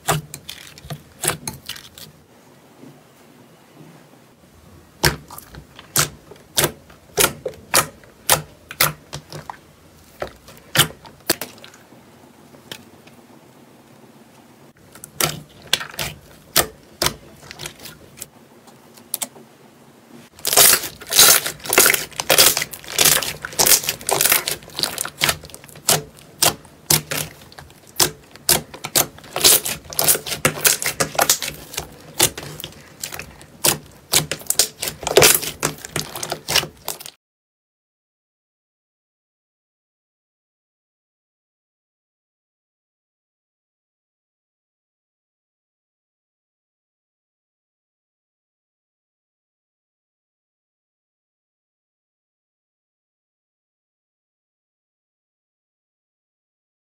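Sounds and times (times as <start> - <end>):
hands kneading slime: 0.0 - 2.2, 4.8 - 11.9, 14.8 - 18.3, 20.3 - 37.2
slime air pockets popping: 5.0 - 11.7, 20.4 - 37.1.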